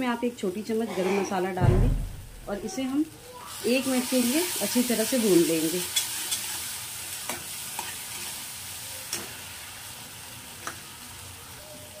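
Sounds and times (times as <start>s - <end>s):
masala sizzling in oil: 0.0s - 1.6s, 2.3s - 12.0s
metal spatula scraping pan: 0.8s - 1.6s, 5.9s - 6.7s.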